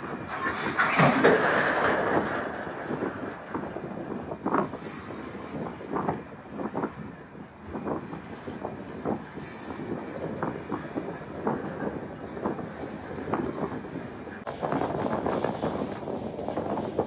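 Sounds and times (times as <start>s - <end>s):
wagons clanking and knocking: 0.0s - 4.8s
train wheels rumbling on rail: 0.0s - 17.0s.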